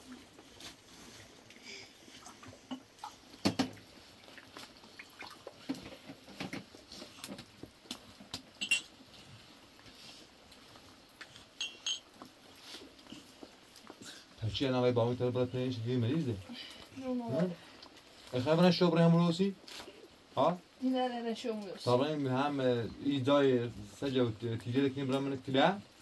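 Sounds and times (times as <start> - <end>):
spoons clinking on plates: 8.6 - 9.0, 11.6 - 12.1.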